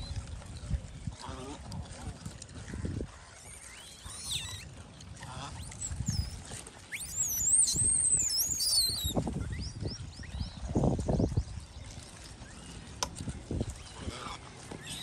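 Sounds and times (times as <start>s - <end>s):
high-pitched animal chirping: 3.7s - 4.6s, 5.6s - 9.2s.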